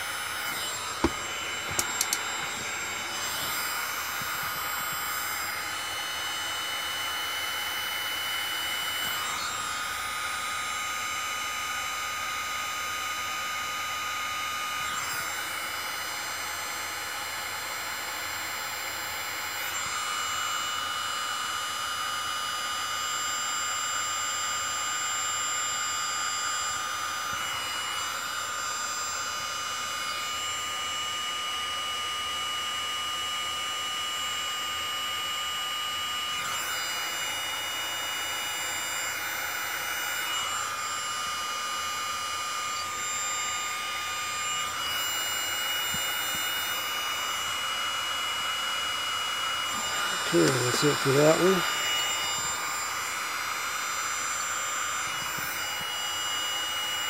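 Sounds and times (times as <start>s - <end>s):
heat gun blowing air: 0.0s - 12.7s, 13.9s - 18.4s, 25.6s - 31.2s, 34.7s - 57.0s.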